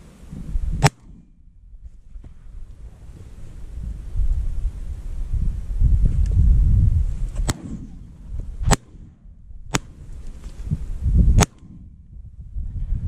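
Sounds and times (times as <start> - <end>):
wind buffeting microphone: 0.0 - 13.0
faint sharp cracks: 0.8 - 1.3, 7.4 - 10.7, 11.4 - 11.8
shotgun shots: 0.8 - 1.3, 7.4 - 10.1, 11.4 - 11.9.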